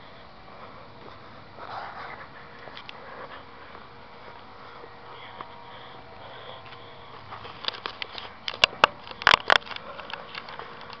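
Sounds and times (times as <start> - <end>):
sharp clicks and knocks: 7.5 - 11.0.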